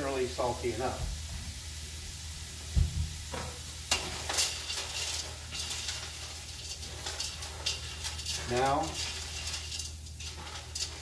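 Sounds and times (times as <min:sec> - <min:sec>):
bacon sizzling in a pot: 0:00.0 - 0:11.0
utensil stirring in a pot: 0:03.6 - 0:11.0.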